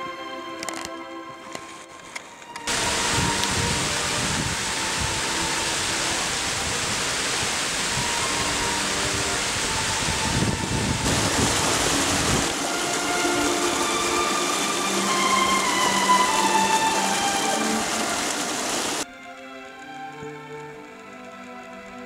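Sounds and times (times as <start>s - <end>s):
creek water rushing over rocks: 2.4s - 21.8s
low rumble of water: 2.7s - 19.0s.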